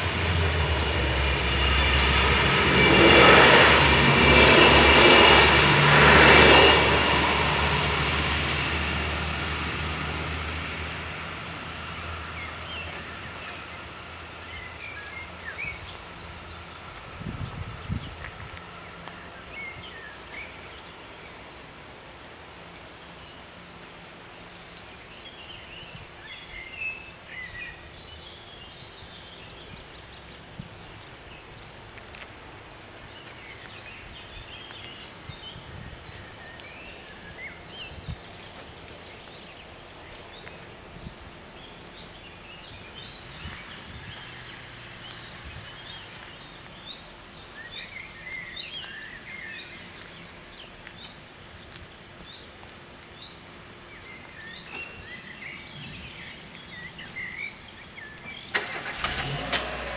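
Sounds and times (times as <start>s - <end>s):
outdoor background noise: 0.0s - 59.9s
small birds chirping: 22.6s - 58.6s.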